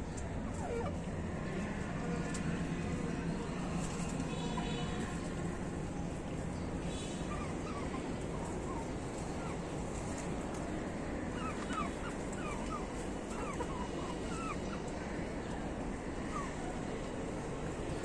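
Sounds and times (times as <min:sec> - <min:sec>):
low background noise: 0:00.0 - 0:18.0
birds chirping: 0:03.0 - 0:15.1.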